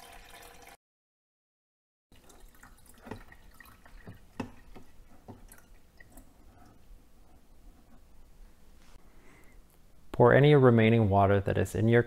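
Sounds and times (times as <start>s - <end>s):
water dripping into tank: 2.1s - 6.8s.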